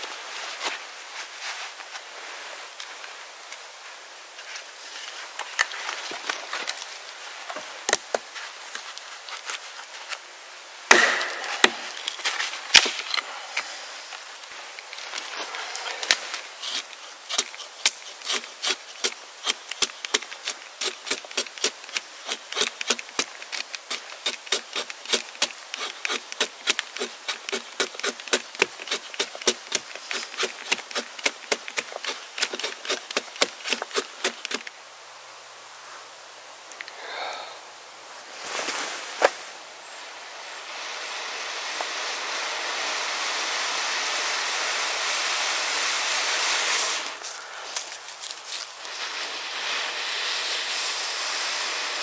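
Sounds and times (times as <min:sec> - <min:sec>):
blade chopping wood: 0:10.9 - 0:12.1, 0:16.7 - 0:34.6.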